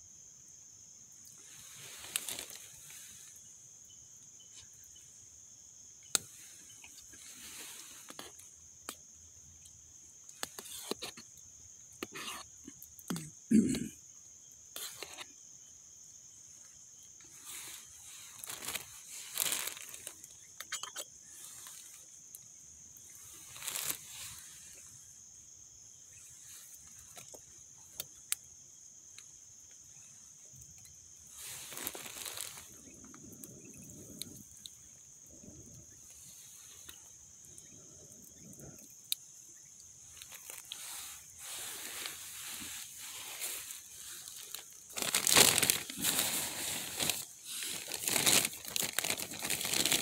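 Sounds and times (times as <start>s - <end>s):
high-pitched hiss: 0.0s - 50.0s
fire clicks and snaps: 1.2s - 3.0s, 6.0s - 12.2s, 30.5s - 35.8s
rustling and crinkling: 1.2s - 3.5s, 6.2s - 9.0s, 10.3s - 11.3s, 14.8s - 15.3s, 16.6s - 25.0s, 30.6s - 34.8s, 39.9s - 50.0s.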